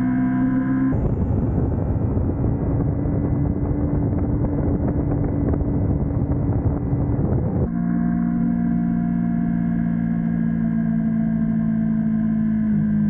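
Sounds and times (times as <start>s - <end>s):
motorcycle running: 0.0s - 13.0s
wind rushing over microphone: 0.1s - 7.8s.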